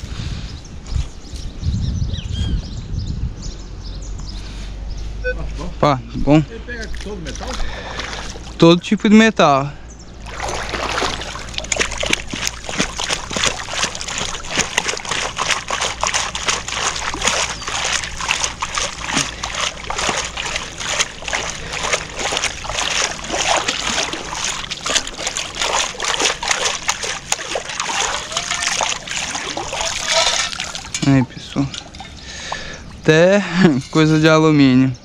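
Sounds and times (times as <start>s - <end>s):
scoop sloshing in shallow water: 7.3s - 8.6s, 10.2s - 31.1s.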